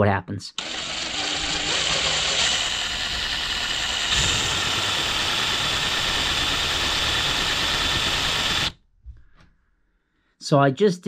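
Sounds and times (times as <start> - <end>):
cordless drill grinding metal: 0.6 - 8.8.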